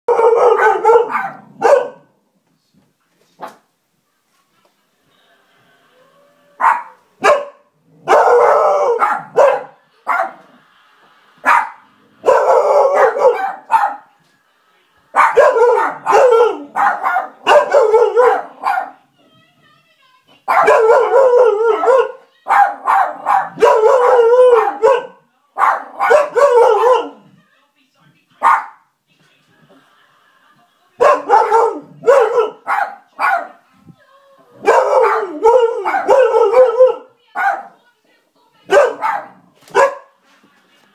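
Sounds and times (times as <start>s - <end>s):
dog barking and howling: 0.1s - 2.1s, 6.6s - 10.4s, 11.5s - 14.0s, 15.2s - 19.0s, 20.5s - 27.2s, 31.0s - 33.6s, 34.6s - 37.8s, 38.7s - 40.1s.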